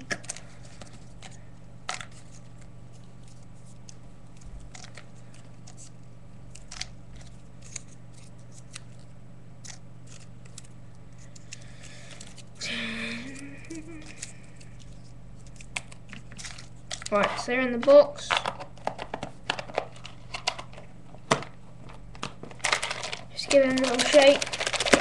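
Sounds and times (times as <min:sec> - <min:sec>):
steady low hum: 0:00.0 - 0:25.0
paper crinkling and creasing: 0:00.2 - 0:12.6, 0:22.5 - 0:25.0.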